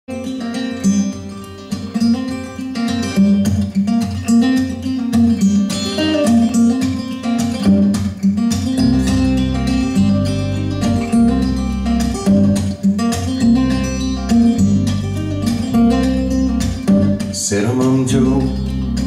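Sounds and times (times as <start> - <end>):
acoustic guitar over loudspeakers: 0.1 - 19.0
low bass notes: 8.8 - 12.7, 13.4 - 17.4, 18.1 - 19.0.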